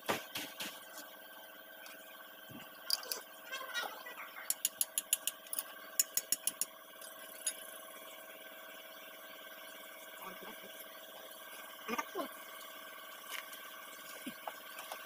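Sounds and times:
steady hum: 0.0s - 15.0s
spanner clicking on bolt: 4.5s - 6.7s.

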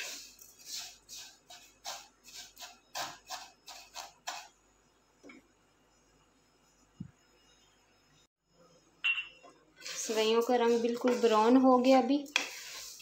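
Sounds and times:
wooden spatula scraping a pan: 0.0s - 4.6s, 9.8s - 13.0s.

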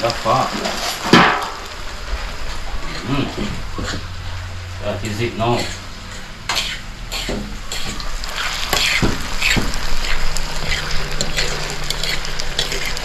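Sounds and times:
food sizzling in a frying pan: 0.0s - 13.0s
utensil scraping a pan: 0.2s - 13.0s.

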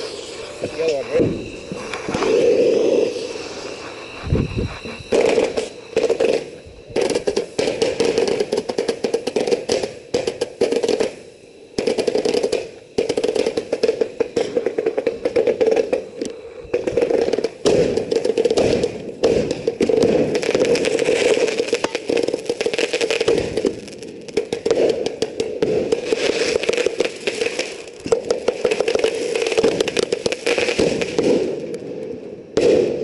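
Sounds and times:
steady rushing noise: 0.0s - 7.4s
firework popping and crackling: 0.0s - 33.0s.

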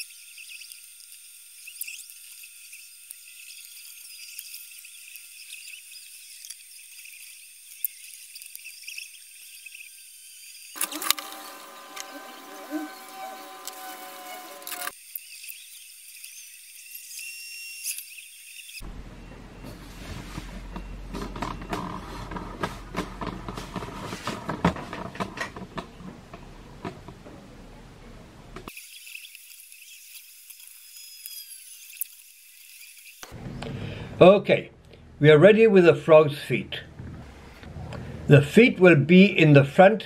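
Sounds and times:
low steady hum: 18.8s - 28.7s.

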